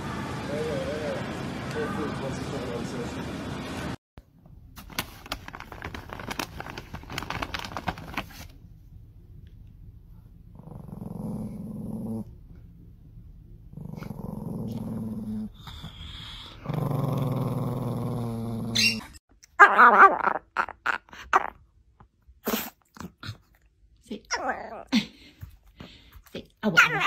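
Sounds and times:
small dog growling: 10.5 - 12.4, 13.7 - 21.5.

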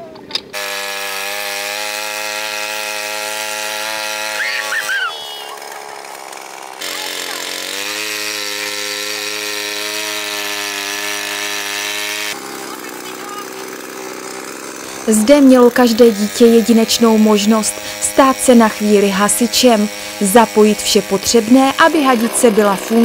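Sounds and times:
small pump engine running: 0.5 - 23.0.

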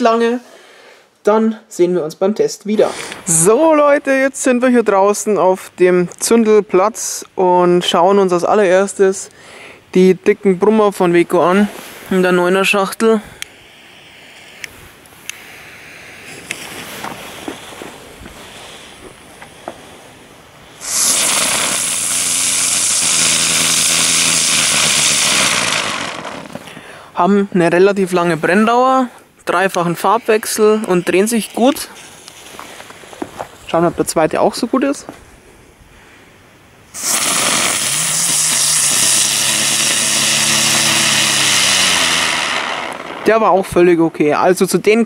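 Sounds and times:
ground spinner firework hissing: 11.6 - 27.0, 29.6 - 33.4, 36.9 - 43.8.

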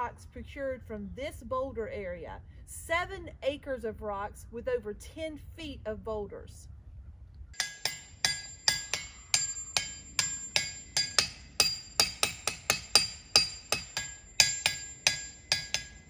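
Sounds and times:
hammer striking ringing rock: 7.6 - 16.0.

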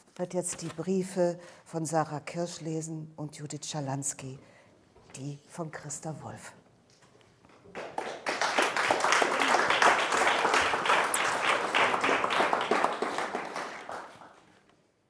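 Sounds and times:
audience applauding: 7.7 - 14.6.

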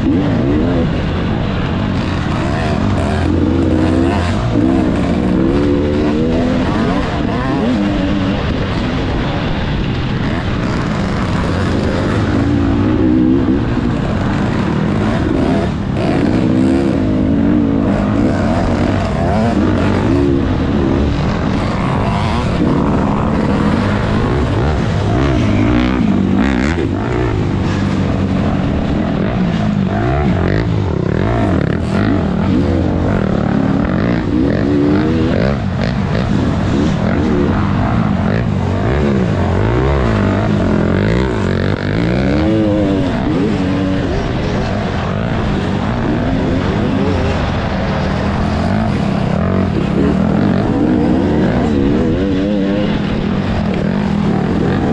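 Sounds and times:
dirt bike engine revving: 0.0 - 54.9.

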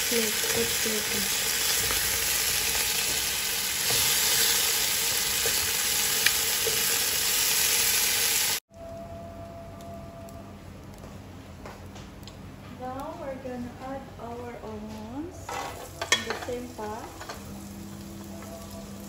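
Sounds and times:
chicken sizzling in oil: 0.0 - 8.6.

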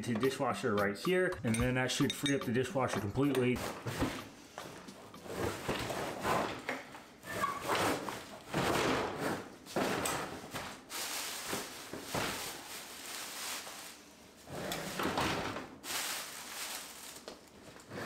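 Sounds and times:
plastic rustling: 9.6 - 17.9
dishwasher scraping and rattling: 14.7 - 15.8.

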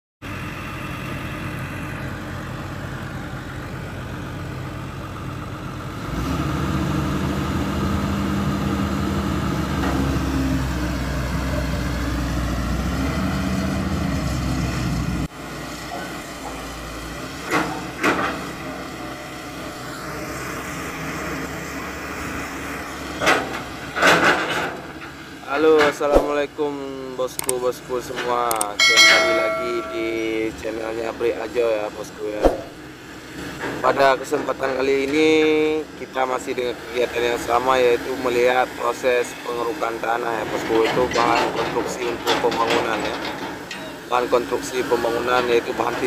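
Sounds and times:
excavator diesel engine running: 0.2 - 25.4
sharp knocks: 32.4 - 32.8.

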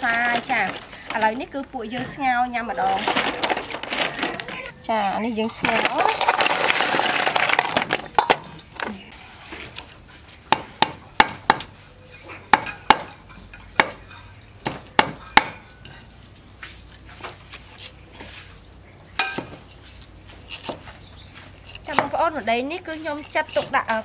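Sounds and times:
snail shells clattering in steel bowl: 5.4 - 8.9
cleaver chopping on wooden block: 10.5 - 11.7, 12.5 - 13.2, 13.8 - 14.0, 14.6 - 15.6.

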